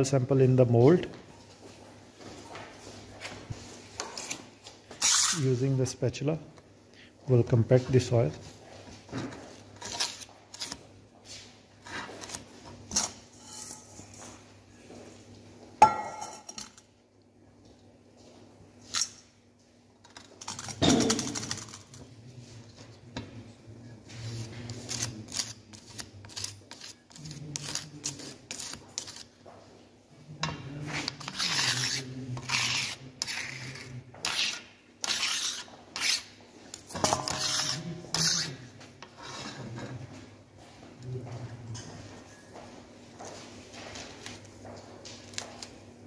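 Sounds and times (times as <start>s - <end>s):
spatula scraping soil from metal bowl: 31.0s - 33.9s.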